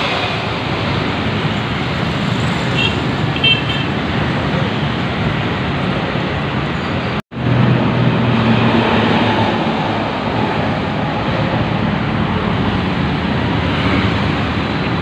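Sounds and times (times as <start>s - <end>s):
city road traffic: 0.0s - 15.0s.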